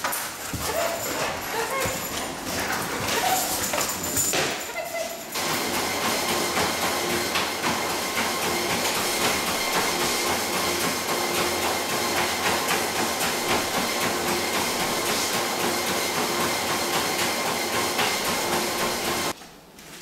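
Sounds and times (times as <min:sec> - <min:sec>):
dog paws ticking on belt: 0:00.0 - 0:05.4
treadmill motor hum and belt hiss: 0:00.0 - 0:20.0.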